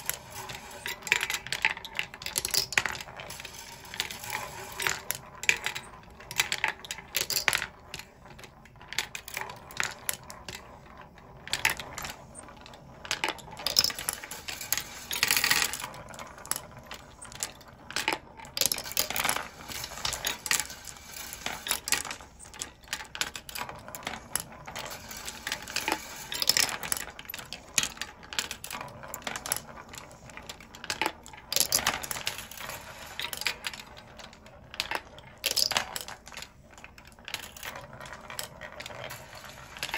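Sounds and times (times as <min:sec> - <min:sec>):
glass marbles clicking and rattling: 0:00.0 - 0:39.9.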